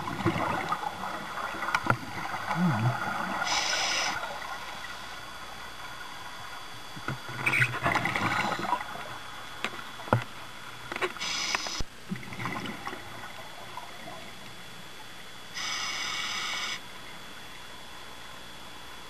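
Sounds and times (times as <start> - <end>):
exhaled air bubbling: 0.0 - 14.6
regulator inhale hiss: 3.4 - 5.2, 11.2 - 11.9, 15.5 - 16.8.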